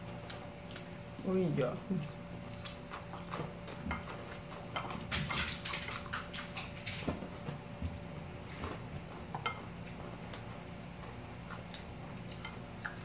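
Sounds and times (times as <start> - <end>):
chewing and mouth clicks: 0.0 - 7.1, 9.2 - 13.0
faint steady hum: 0.0 - 13.0
chopsticks tapping on dishes: 9.3 - 9.7.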